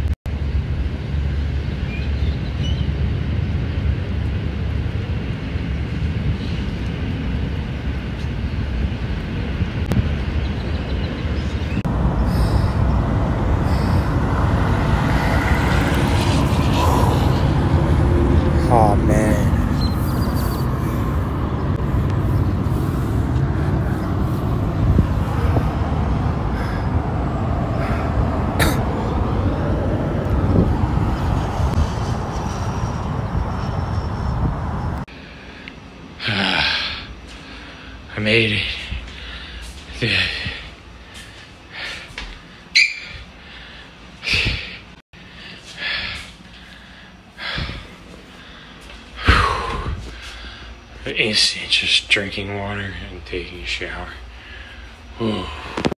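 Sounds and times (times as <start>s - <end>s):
highway traffic rumble: 0.0s - 55.9s
man breathing hard: 12.2s - 15.6s, 20.4s - 29.2s, 35.1s - 51.0s, 54.2s - 55.9s.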